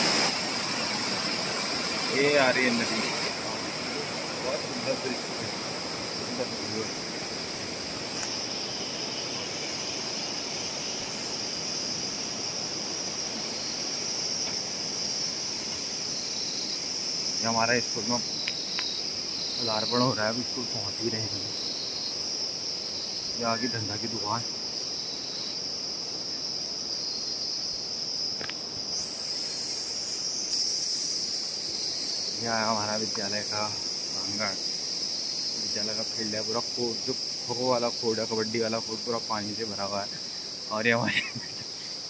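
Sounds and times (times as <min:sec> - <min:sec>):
river water rushing: 0:00.0 - 0:16.1
high-pitched insect drone: 0:00.0 - 0:42.0
low hiss: 0:00.0 - 0:42.0.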